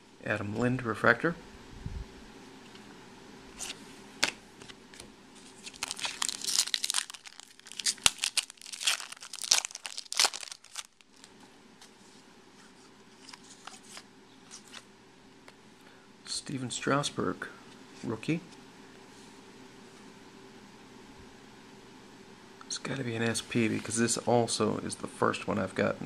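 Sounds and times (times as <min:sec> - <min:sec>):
handling of cards: 0:03.6 - 0:15.6
foil wrapper crinkling and tearing: 0:05.5 - 0:11.3.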